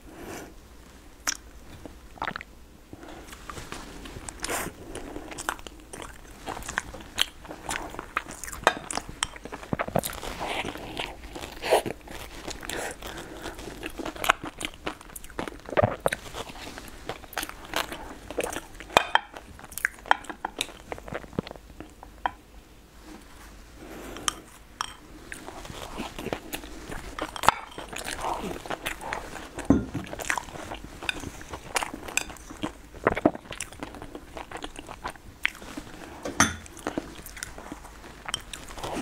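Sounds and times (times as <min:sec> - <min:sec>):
chopsticks clicking on bowls: 0:24.2 - 0:25.0
chewing and biting: 0:25.3 - 0:39.0.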